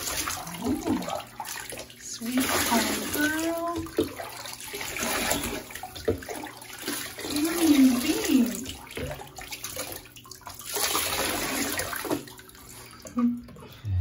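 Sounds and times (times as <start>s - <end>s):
bath water sloshing and splashing: 0.0s - 13.8s
short wavering voice-like sound: 13.8s - 14.0s.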